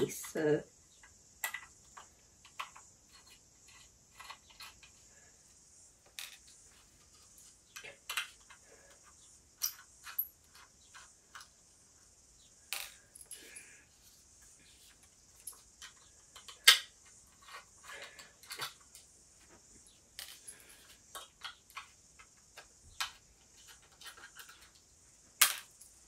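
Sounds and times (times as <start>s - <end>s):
screws set down on tabletop: 1.4s - 4.9s, 6.1s - 6.6s.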